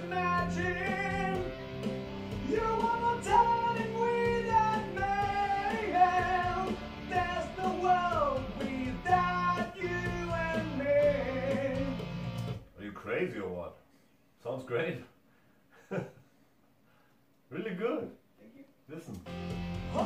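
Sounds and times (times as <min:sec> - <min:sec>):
rock song over speakers: 0:00.0 - 0:12.7, 0:19.2 - 0:20.0.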